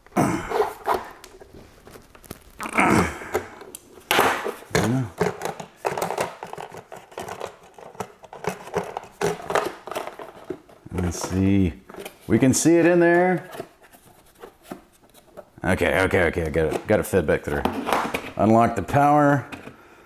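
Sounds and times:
plastic packaging crinkling: 0:00.6 - 0:02.8.

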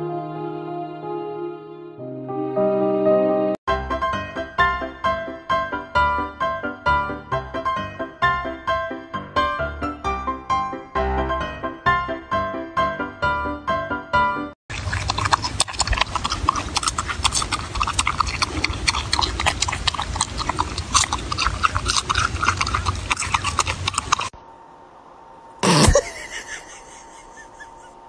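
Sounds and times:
marmot chewing crunchily: 0:14.7 - 0:24.4
faint steady hum: 0:14.7 - 0:28.0.

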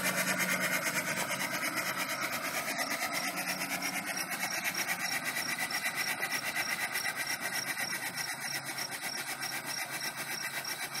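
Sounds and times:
steam engine chuffing: 0:00.0 - 0:11.0.

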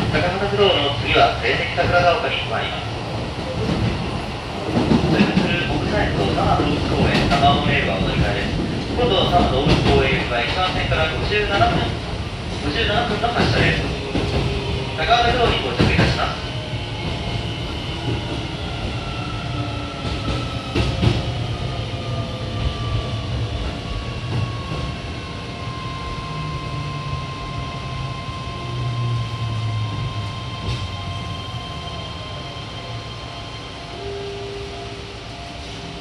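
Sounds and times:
train inverter whine: 0:10.9 - 0:36.0.

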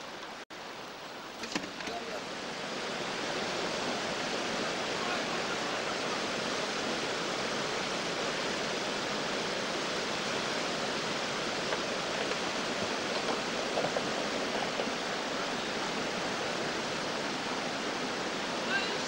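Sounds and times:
river water rushing over rocks: 0:00.0 - 0:19.0.

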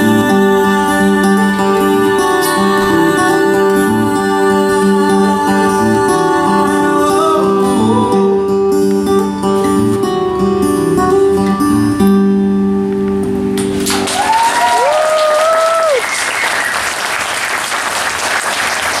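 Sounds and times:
acoustic guitar: 0:00.0 - 0:14.5
audience applause: 0:13.7 - 0:19.0
crowd cheering: 0:13.7 - 0:19.0.

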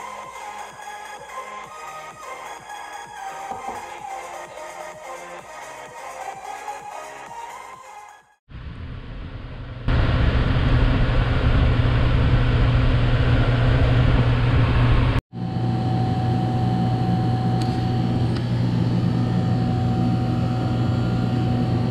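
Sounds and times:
cooler fan humming: 0:08.7 - 0:21.9.

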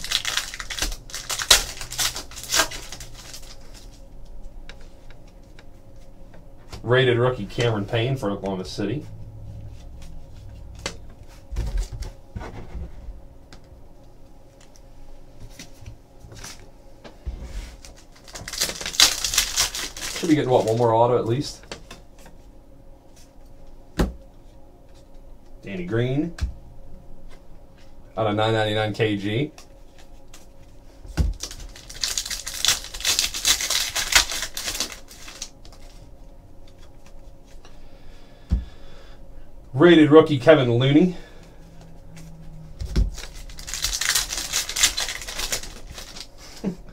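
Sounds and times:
plastic wrapper crinkling: 0:00.0 - 0:04.0, 0:17.8 - 0:21.0, 0:31.3 - 0:36.0, 0:42.9 - 0:46.8
handling cards: 0:00.0 - 0:06.1, 0:17.8 - 0:21.4, 0:29.6 - 0:36.0, 0:41.7 - 0:46.8.

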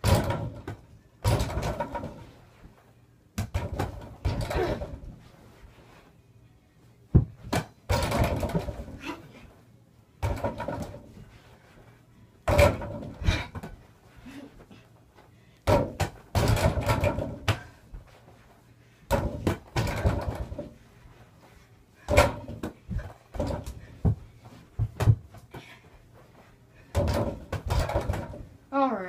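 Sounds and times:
hoop rattling: 0:15.7 - 0:17.8, 0:19.1 - 0:20.8.

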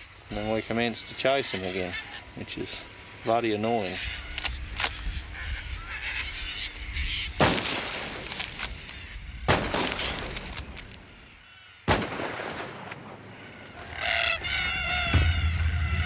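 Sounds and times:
rifle shots with echo: 0:07.4 - 0:08.4, 0:09.5 - 0:10.5, 0:11.9 - 0:13.2.

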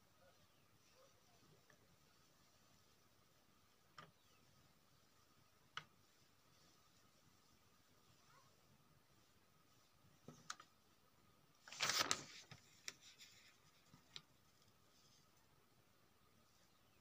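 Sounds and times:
paper page rustling: 0:11.6 - 0:15.2.

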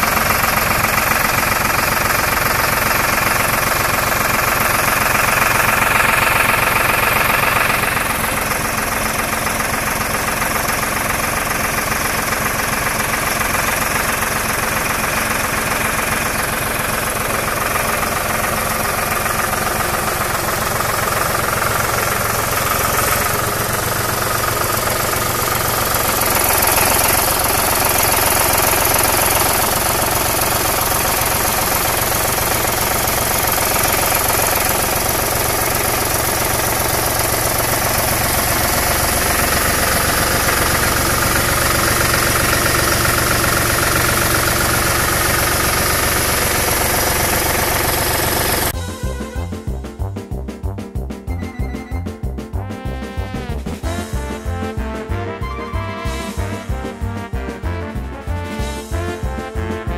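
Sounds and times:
hydraulics raising: 0:00.0 - 0:48.9
tractor diesel engine running: 0:00.0 - 0:59.9.

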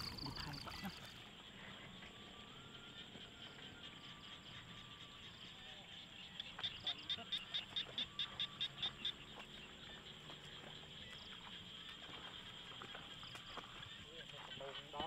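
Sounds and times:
high insect-like drone: 0:00.0 - 0:06.7.

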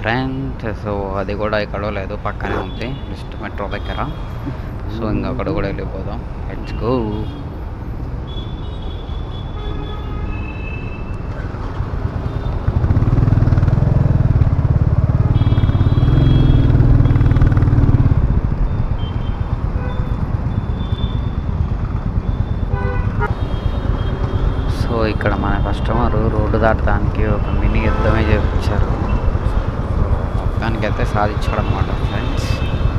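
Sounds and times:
wind and road noise: 0:00.0 - 0:32.9
motorcycle engine rumble: 0:11.3 - 0:32.9.

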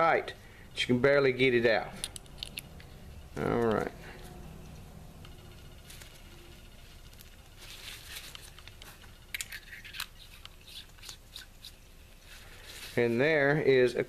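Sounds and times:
small metallic clicks and scrapes: 0:07.1 - 0:11.8.

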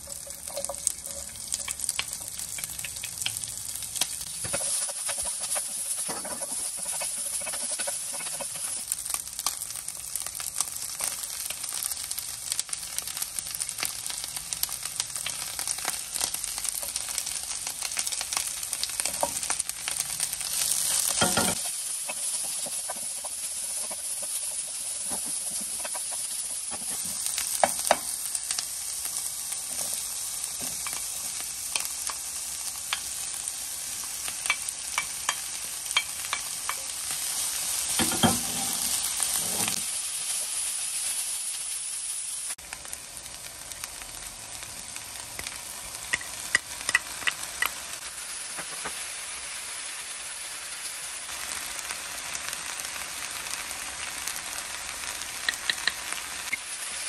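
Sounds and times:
vegetables sizzling in oil: 0:00.0 - 0:57.0
spatula scraping pan: 0:04.3 - 0:09.1, 0:20.5 - 0:28.0, 0:37.9 - 0:39.9.

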